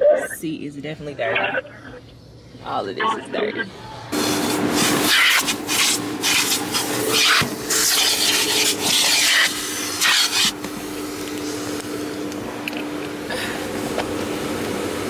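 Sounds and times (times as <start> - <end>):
vacuum motor hum: 4.1 - 15.0
vacuum nozzle sucking carpet: 4.2 - 10.6.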